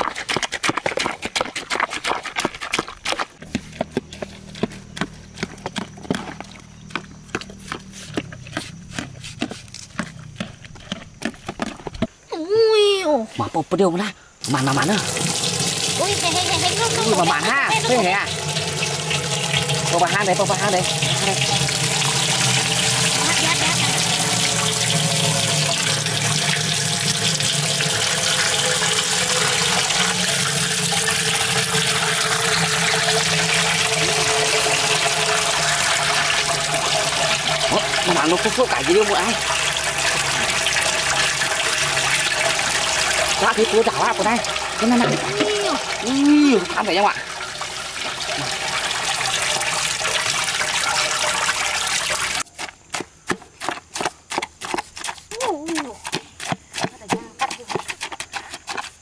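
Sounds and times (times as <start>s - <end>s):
water running: 14.4s - 52.4s.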